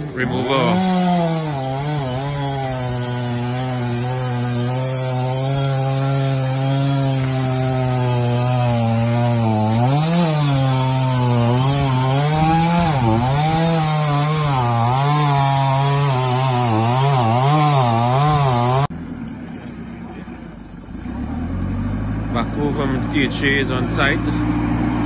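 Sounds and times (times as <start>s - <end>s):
chainsaw cutting wood: 0.0s - 18.9s.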